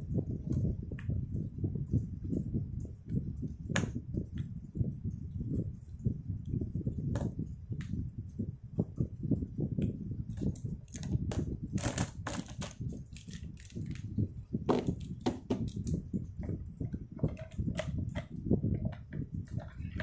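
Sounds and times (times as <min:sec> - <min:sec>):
low rumble of handling: 0:00.0 - 0:20.0
marker pens clicking and rattling: 0:10.4 - 0:16.0, 0:17.2 - 0:20.0.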